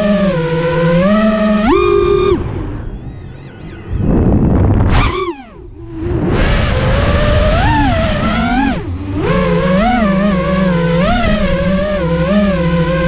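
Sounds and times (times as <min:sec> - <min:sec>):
quadcopter motors whining: 0:00.0 - 0:13.0
rush of noise: 0:01.5 - 0:11.7.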